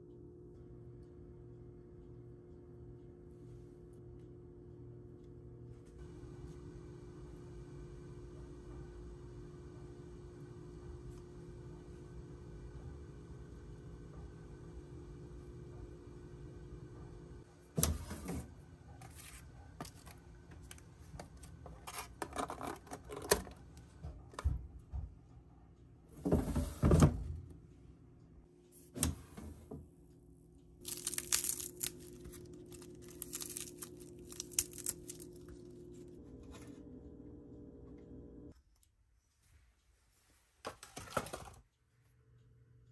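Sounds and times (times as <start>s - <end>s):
drawer sliding on rails: 26.2s - 27.3s
foil tray crinkling and rattling: 30.9s - 35.4s.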